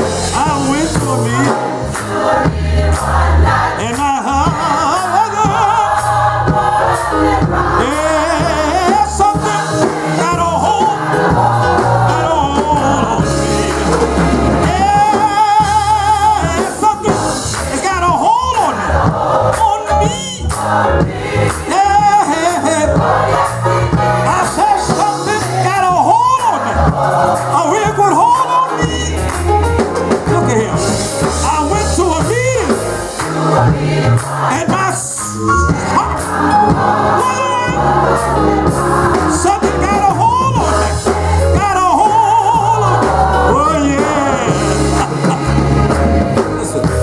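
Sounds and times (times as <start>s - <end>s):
man singing into a microphone: 0.0s - 1.6s, 3.8s - 6.0s, 7.8s - 11.2s, 12.1s - 13.4s, 14.6s - 18.8s, 19.5s - 20.5s, 21.7s - 22.9s, 24.3s - 26.8s, 37.2s - 37.8s, 39.3s - 45.6s
choir singing: 0.0s - 47.0s
drums: 0.0s - 47.0s
people clapping: 1.9s - 3.7s, 13.7s - 14.4s, 28.4s - 30.5s, 33.1s - 34.7s, 44.9s - 47.0s.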